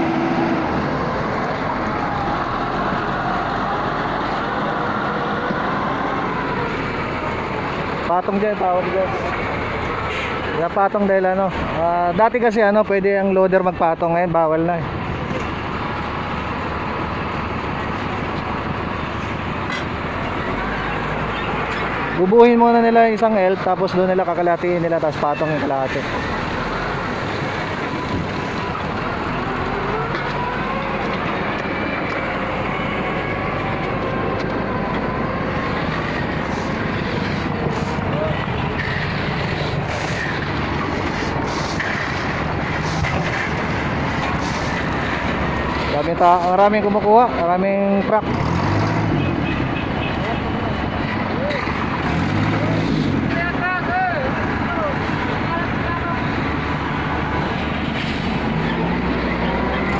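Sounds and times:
vehicle engine rumbling: 0.0s - 59.9s
shovels scraping gravel: 41.1s - 43.5s.

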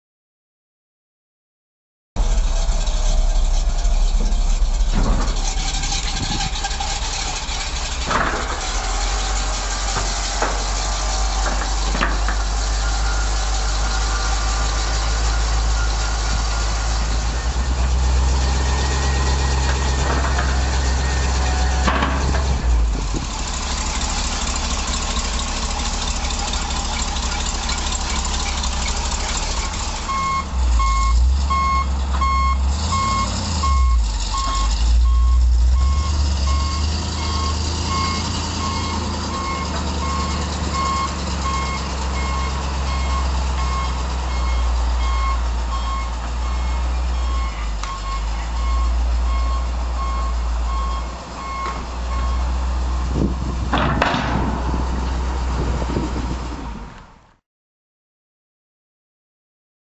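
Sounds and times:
truck engine running: 2.2s - 57.3s
sharp knocks and clicks: 8.0s - 12.7s
reversing alarm beeping: 12.6s - 19.5s, 26.9s - 52.6s.

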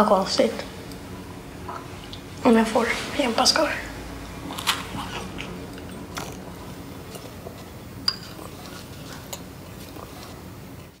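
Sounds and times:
spoon clinking against bowl: 8.0s - 8.4s.

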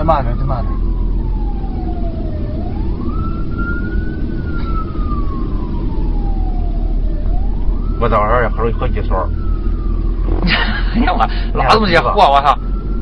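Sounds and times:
moving vehicle rumble: 0.0s - 13.0s
police siren wailing: 0.0s - 13.0s.

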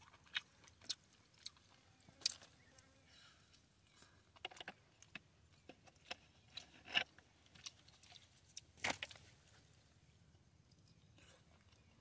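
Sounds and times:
chewing and mouth smacks: 0.0s - 2.8s, 5.9s - 8.7s.

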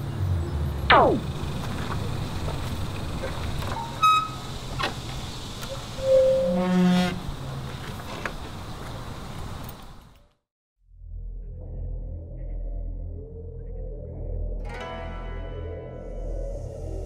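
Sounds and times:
background hum: 0.2s - 10.2s
hinges creaking: 1.6s - 9.0s
gate squeaking: 3.3s - 5.1s, 5.7s - 7.6s.

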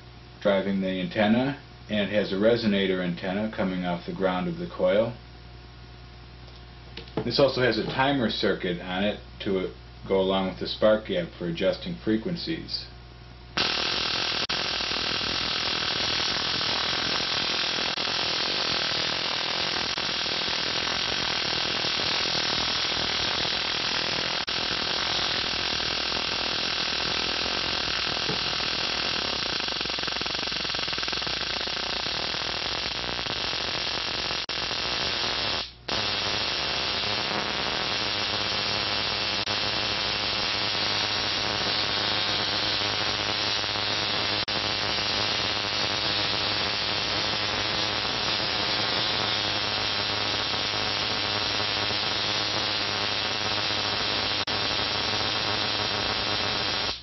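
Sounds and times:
spark gap hissing buzz: 13.5s - 57.0s.

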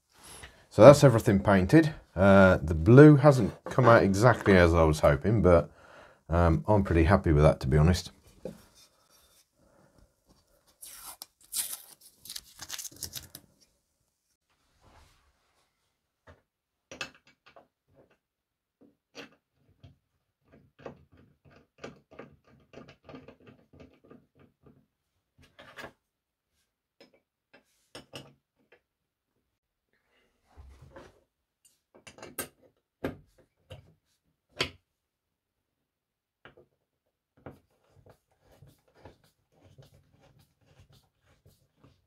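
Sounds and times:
rustling and scraping: 8.2s - 13.8s.

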